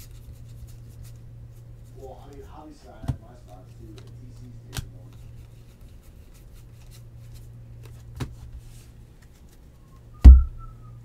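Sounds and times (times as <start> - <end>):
heavy thump: 10.2 - 10.7.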